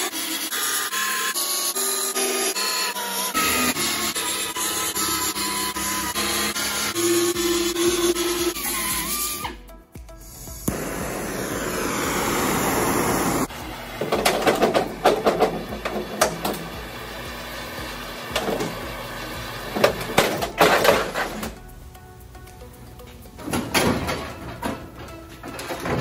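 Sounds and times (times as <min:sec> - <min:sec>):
background music: 0:02.7 - 0:26.0
gas torch hissing: 0:10.2 - 0:20.2.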